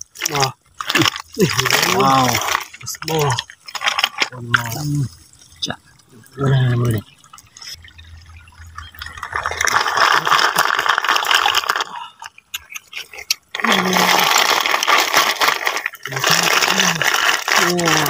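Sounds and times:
water splashing and pouring: 0.0 - 18.0.

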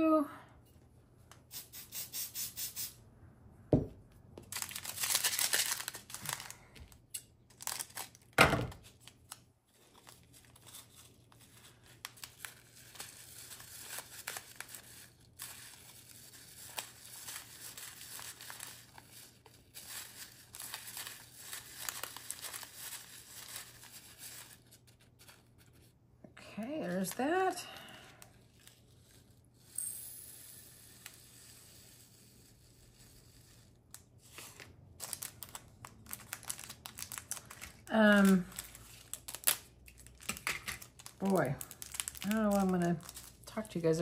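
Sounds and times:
plastic bags tearing and crinkling: 4.5 - 24.6, 34.3 - 44.0.

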